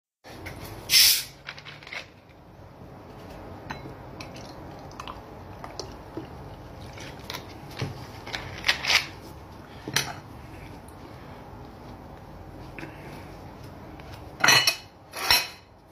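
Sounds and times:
bottle opening hiss: 0:00.9 - 0:01.4
cola pouring and fizzing: 0:04.2 - 0:07.1.

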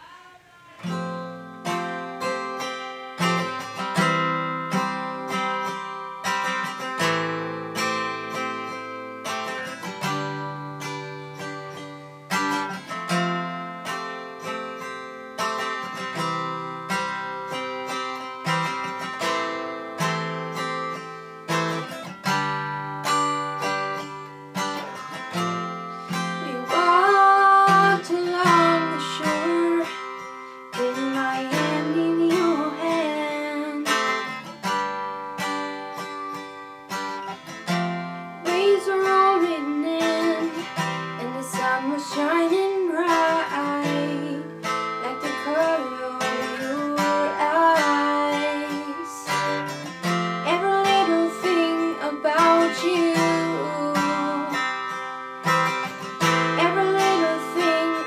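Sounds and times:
acoustic guitar strumming: 0:00.0 - 0:58.0
woman singing: 0:23.2 - 0:34.4, 0:38.4 - 0:55.0, 0:56.1 - 0:58.0.

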